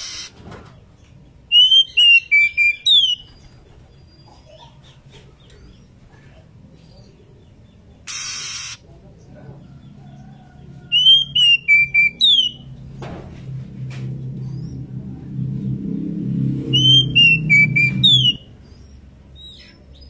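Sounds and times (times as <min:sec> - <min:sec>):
bird whistled song: 0:01.5 - 0:03.6, 0:10.9 - 0:12.6, 0:16.7 - 0:20.0
low hum: 0:10.5 - 0:19.9.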